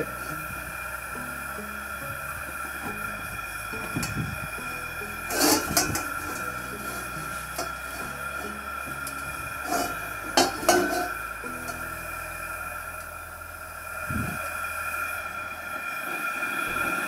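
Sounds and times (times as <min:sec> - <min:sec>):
wok scraping on metal ring: 0:00.0 - 0:12.1.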